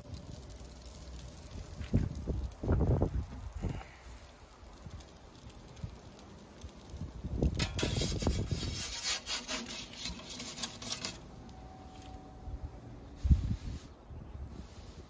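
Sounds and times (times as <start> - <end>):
metal peel scraping baking stone: 7.5 - 11.4.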